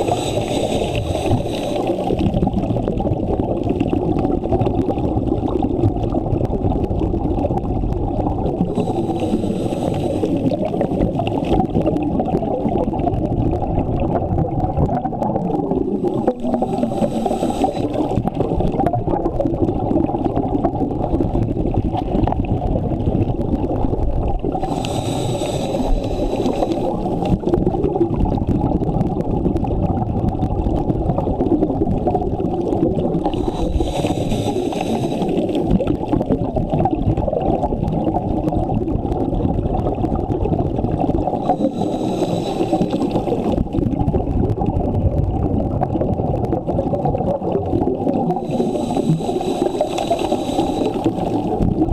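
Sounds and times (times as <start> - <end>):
breath hissing through regulator: 0.0 - 2.3, 8.7 - 11.0, 15.9 - 18.3, 24.6 - 27.4, 33.2 - 35.8, 41.4 - 43.6, 48.4 - 51.6
low underwater rumble: 0.0 - 51.9.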